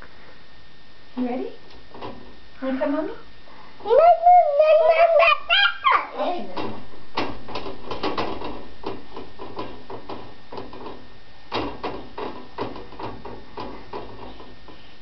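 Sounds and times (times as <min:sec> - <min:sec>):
low steady hum: 0:00.0 - 0:15.0
wire drying rack rattling: 0:06.4 - 0:15.0.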